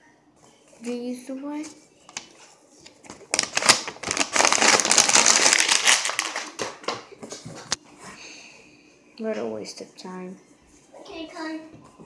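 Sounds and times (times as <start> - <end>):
paper being crumpled: 2.2 - 7.0.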